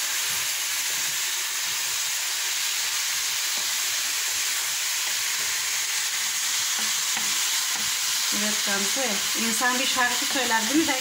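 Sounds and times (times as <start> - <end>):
vegetables sizzling in oil: 0.0 - 11.0
wooden spatula knocking pan: 6.7 - 8.0.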